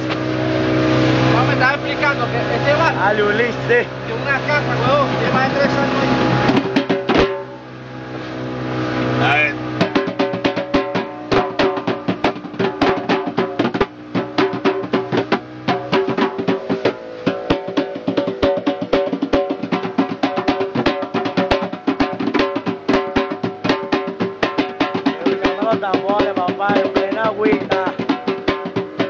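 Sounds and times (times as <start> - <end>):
hand drums slaps and tones: 5.3 - 7.6, 9.7 - 29.0.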